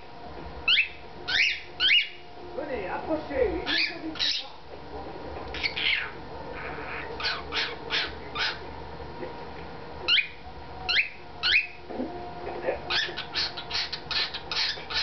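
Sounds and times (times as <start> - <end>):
cockatiel chirping and whistling: 0.6 - 2.2, 6.9 - 8.6, 10.1 - 11.8, 12.9 - 15.0.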